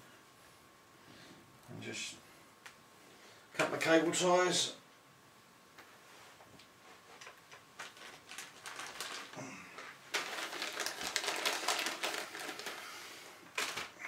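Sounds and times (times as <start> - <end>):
rapid clicking and rustling: 7.0 - 12.9.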